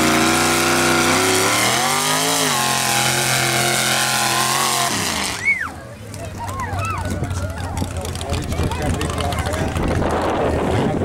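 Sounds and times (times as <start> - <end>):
truck engine revving: 0.0 - 5.8.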